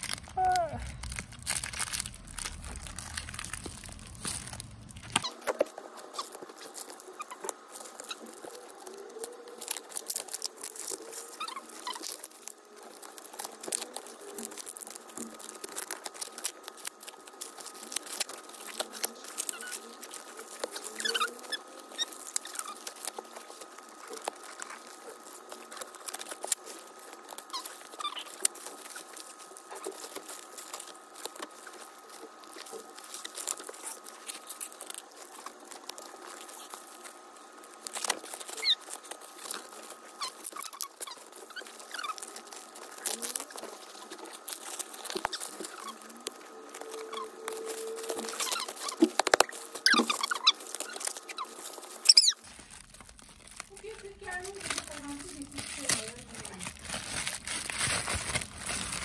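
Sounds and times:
plastic wrapping crinkling and tearing: 0.0s - 59.0s.

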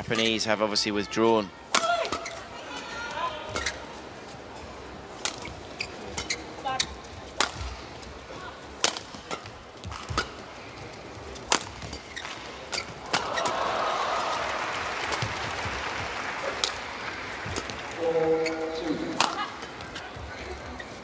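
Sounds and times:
crowd noise: 0.0s - 21.0s
shuttlecock struck by rackets: 7.4s - 7.8s, 8.8s - 10.4s, 11.5s - 13.6s, 19.2s - 19.4s.

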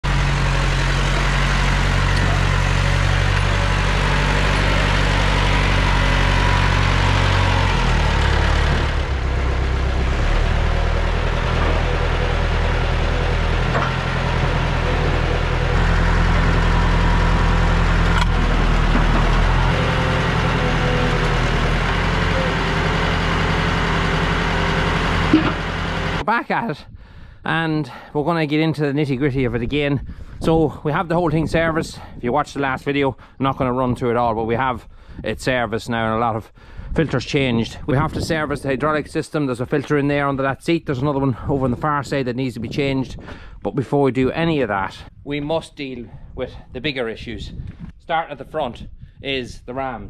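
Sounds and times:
diesel engine running: 0.0s - 26.3s.

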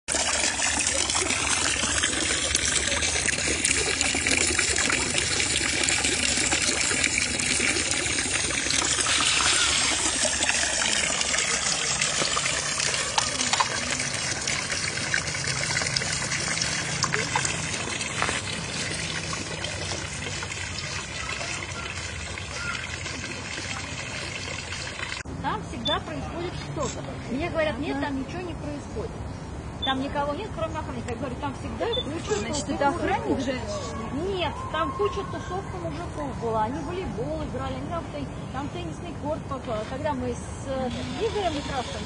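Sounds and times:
water pouring and splashing: 0.1s - 25.3s.

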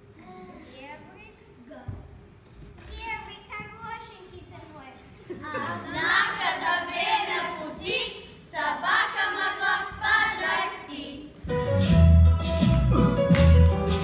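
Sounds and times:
children singing: 5.6s - 11.2s.

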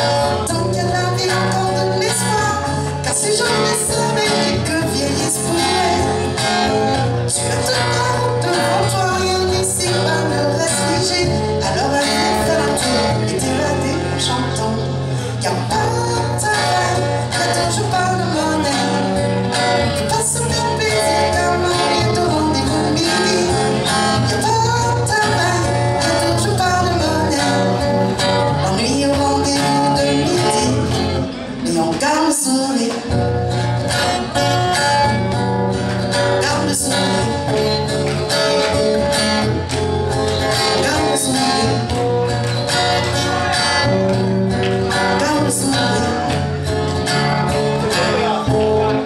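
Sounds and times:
acoustic guitar: 0.0s - 49.0s
woman singing: 0.4s - 6.3s, 7.4s - 19.0s, 19.9s - 23.6s.

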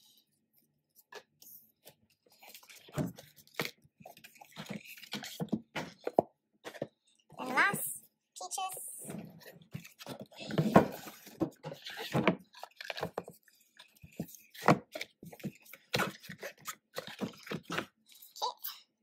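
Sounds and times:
card and paper rustling: 0.9s - 7.9s.

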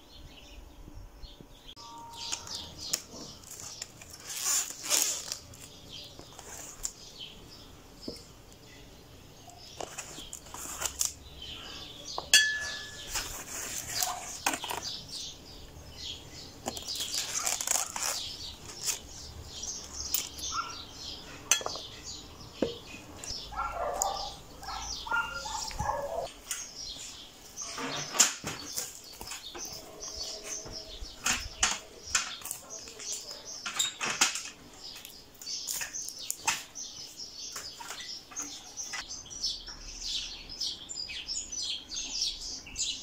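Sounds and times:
birds singing and chirping: 0.0s - 43.0s
glass and utensils clinking: 12.3s - 13.4s, 21.5s - 21.9s.

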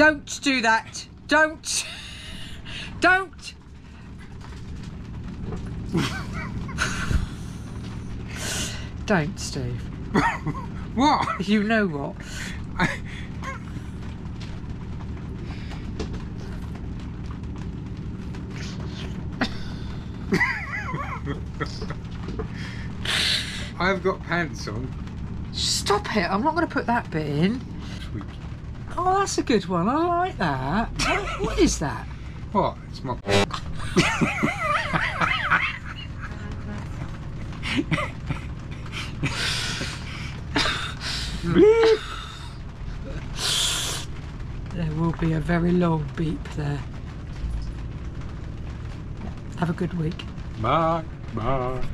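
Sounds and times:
steady low hum: 0.0s - 51.9s
woman laughing: 1.7s - 3.0s, 5.9s - 7.4s, 10.1s - 11.5s, 12.7s - 13.9s, 19.4s - 22.0s, 33.5s - 42.4s
man laughing: 5.9s - 7.4s, 10.2s - 10.9s, 19.4s - 22.0s, 33.4s - 36.6s, 37.4s - 42.2s
woman giggling: 19.4s - 22.0s, 33.5s - 36.8s, 37.6s - 39.9s, 40.6s - 42.2s.

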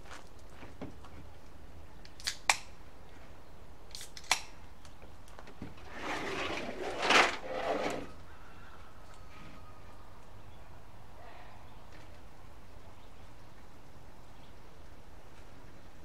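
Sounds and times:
gravel sliding inside metal tank: 5.8s - 8.2s.

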